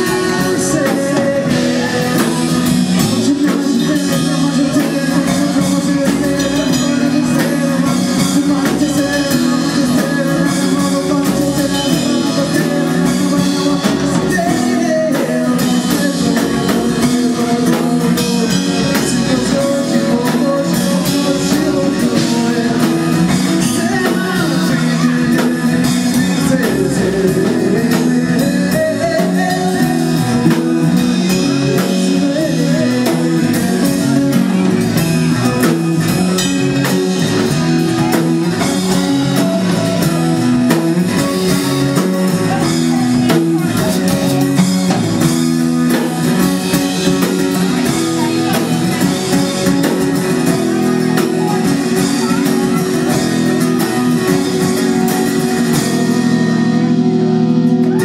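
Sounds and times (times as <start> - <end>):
bass guitar: 0.0 - 58.0
drum kit: 0.0 - 58.0
electric guitar: 0.0 - 58.0
person singing: 0.0 - 58.0.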